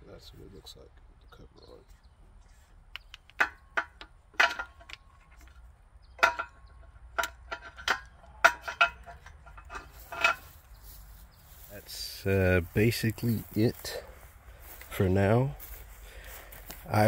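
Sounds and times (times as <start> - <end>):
metal fittings clicking: 6.2 - 10.4.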